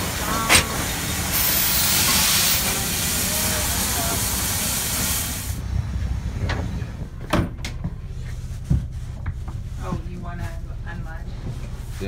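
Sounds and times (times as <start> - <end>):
steam locomotive venting steam: 0.0 - 7.2.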